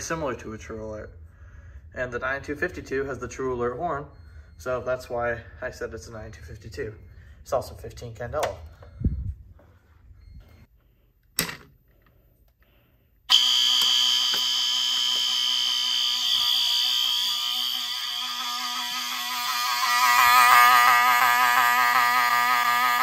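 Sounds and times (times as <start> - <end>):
fire alarm horns blaring: 13.3 - 23.0.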